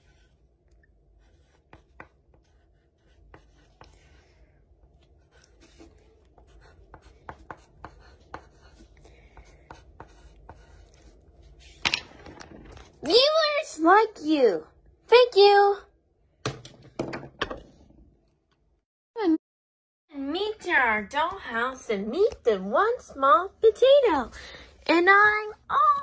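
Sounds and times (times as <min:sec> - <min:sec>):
pencil scratching on paper: 0:00.0 - 0:00.5, 0:01.2 - 0:11.8
pencil tapping on paper: 0:01.2 - 0:04.2, 0:05.3 - 0:11.1.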